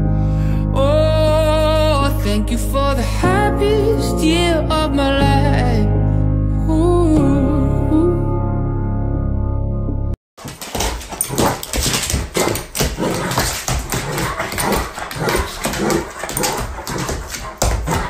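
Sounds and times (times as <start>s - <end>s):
paws and nails on hardwood floor: 10.4s - 18.0s.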